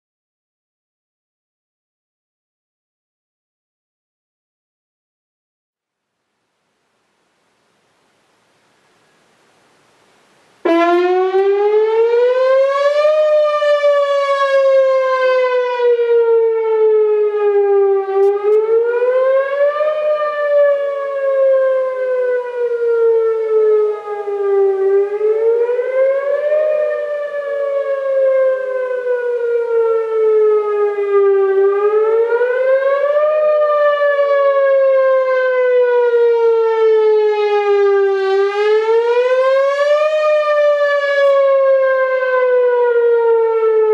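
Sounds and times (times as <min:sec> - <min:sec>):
warning siren wailing: 0:10.6 - 0:43.9.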